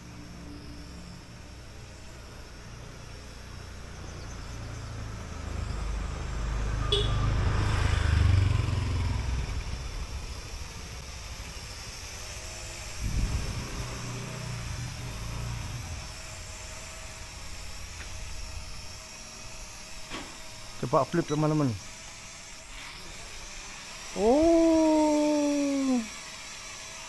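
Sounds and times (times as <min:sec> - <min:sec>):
road vehicle passing by: 0:04.1 - 0:11.0, 0:13.0 - 0:18.4.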